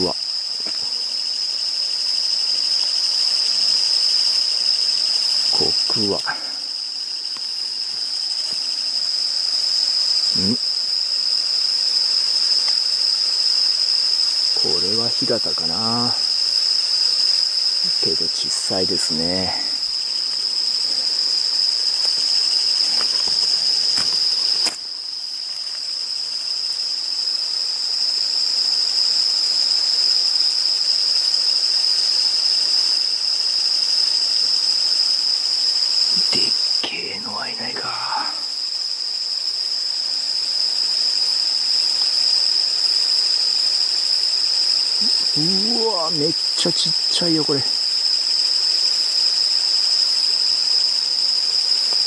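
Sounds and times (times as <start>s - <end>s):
insects trilling: 0.0s - 52.0s
faint noises: 10.3s - 10.6s, 36.1s - 38.5s, 45.0s - 47.7s.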